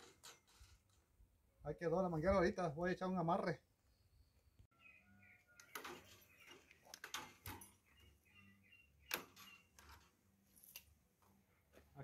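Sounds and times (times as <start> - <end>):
wire twisting clicks and scrapes: 0.0 - 1.1, 5.6 - 7.8, 9.1 - 11.0.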